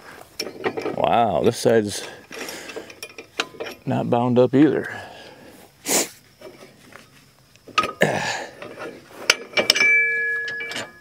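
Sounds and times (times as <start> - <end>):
metal pin clinking: 2.2 - 3.9, 8.6 - 11.0.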